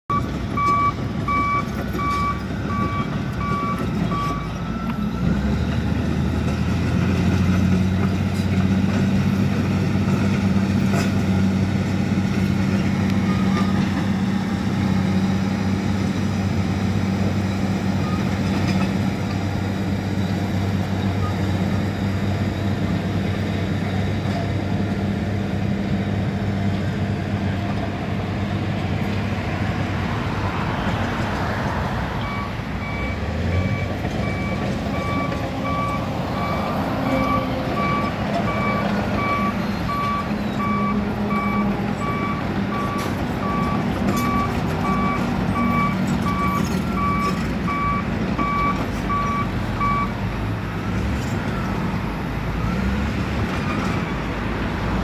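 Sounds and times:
backup alarm beeping: 0.1s - 4.5s, 32.2s - 50.1s
bulldozer diesel engine running: 0.1s - 55.0s.

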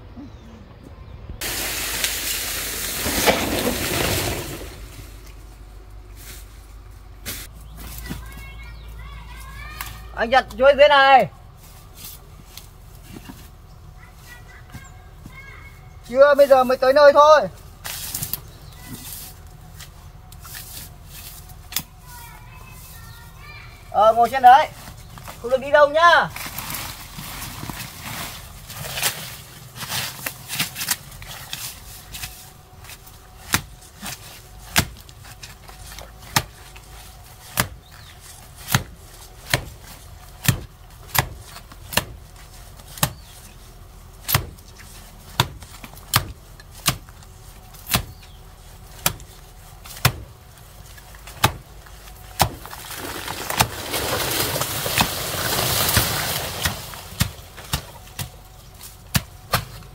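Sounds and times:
plant toppling with leaves crashing: 1.4s - 8.5s, 24.2s - 59.9s
blade chopping plant stem: 28.9s - 43.4s, 44.2s - 50.3s, 51.2s - 51.7s, 54.9s - 59.9s.

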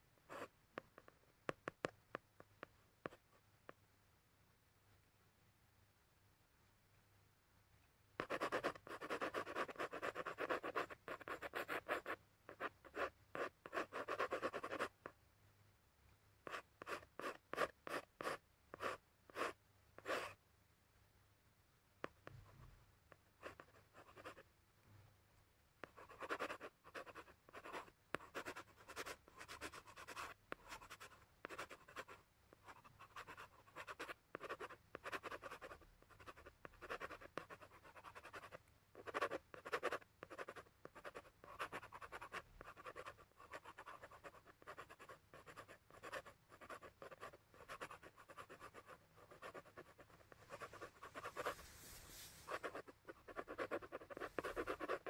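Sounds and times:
pencil scratching on paper: 8.2s - 15.0s, 16.5s - 20.4s, 23.4s - 24.4s, 25.8s - 55.0s.

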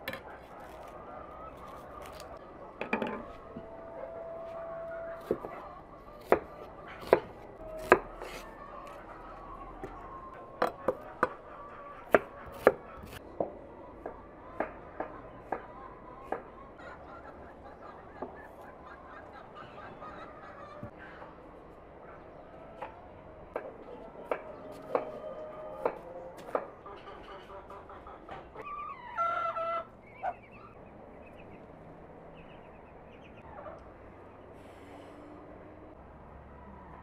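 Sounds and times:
low outdoor background: 0.0s - 37.0s
poultry calling: 25.0s - 31.5s.

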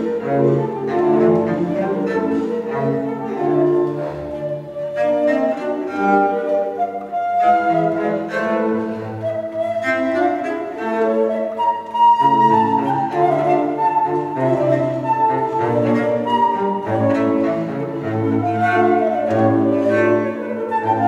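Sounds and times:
cello: 0.0s - 21.0s
flute playing a melody: 0.0s - 21.0s.

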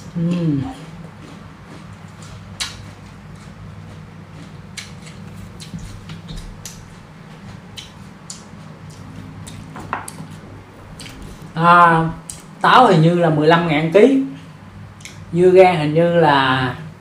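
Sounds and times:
person chewing crunchy fruit: 0.0s - 11.6s
low hum: 0.0s - 17.0s.

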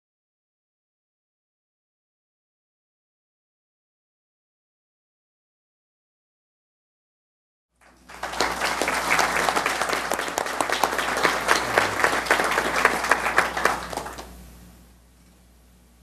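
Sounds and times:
audience applause: 7.8s - 14.4s.

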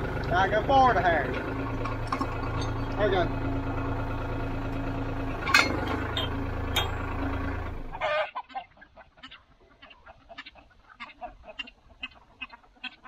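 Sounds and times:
tractor engine idling: 0.0s - 8.1s
metal clanks: 1.3s - 3.3s, 4.7s - 7.3s
hens clucking: 7.8s - 13.0s.

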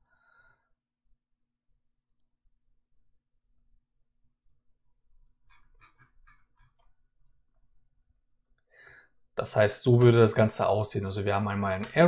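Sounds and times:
computer mouse clicks: 6.8s - 7.5s.

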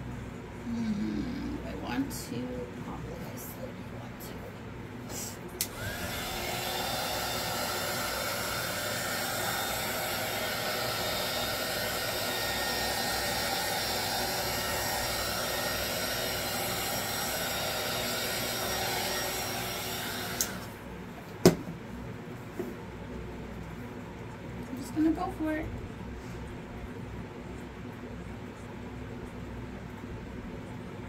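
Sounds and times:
electric blower motor whining: 5.6s - 20.8s.

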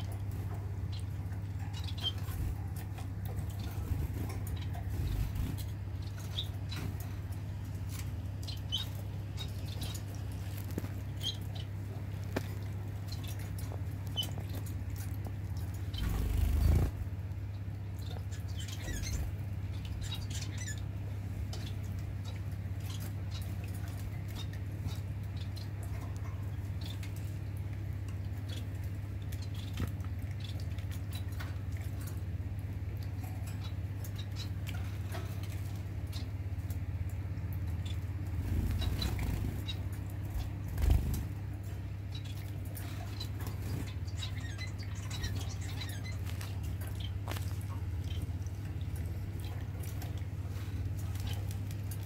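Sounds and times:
finches chirping: 0.0s - 7.5s, 8.4s - 17.2s, 18.0s - 25.8s, 37.7s - 41.3s, 42.0s - 49.6s
low pump hum: 0.0s - 52.0s
trickling water: 0.0s - 52.0s.

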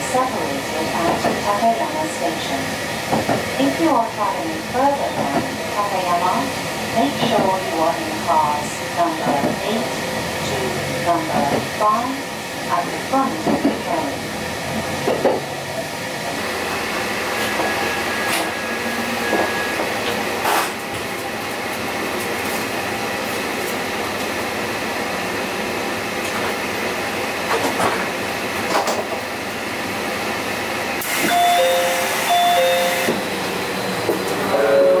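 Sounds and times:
train running noise: 0.0s - 35.0s
train doors hissing open: 31.0s - 35.0s
two-note door chime: 31.3s - 33.1s.

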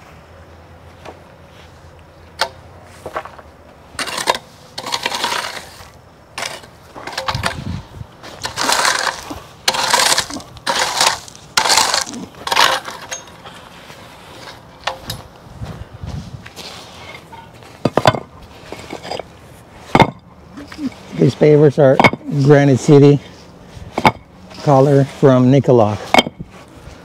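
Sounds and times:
hand tools scraping stone dust: 4.0s - 15.2s, 16.5s - 26.7s.

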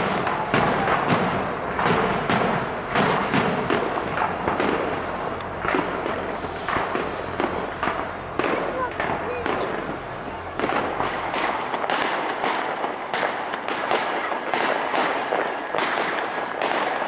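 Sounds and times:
fireworks bursts and bangs: 0.0s - 17.0s.

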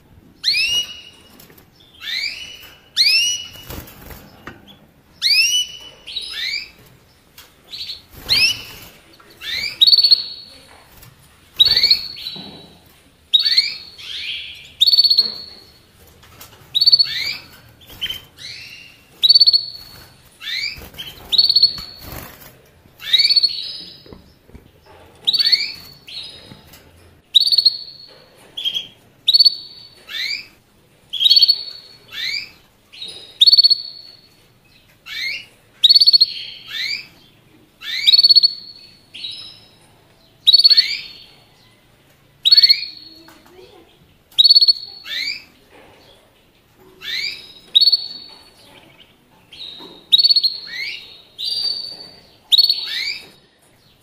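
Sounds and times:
finch calling: 0.4s - 1.2s, 11.6s - 12.4s, 16.8s - 22.2s.

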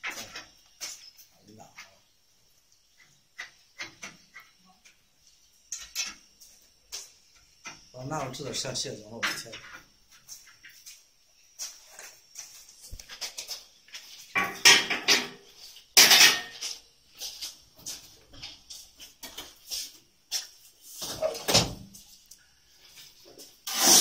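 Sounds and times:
metal clanking and rattling: 14.3s - 15.4s, 16.0s - 16.8s.

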